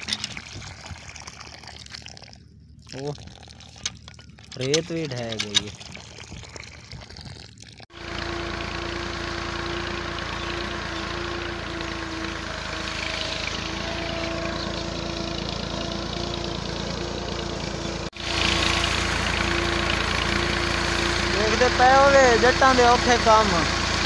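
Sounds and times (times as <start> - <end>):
tractor diesel engine running: 7.9 - 24.0.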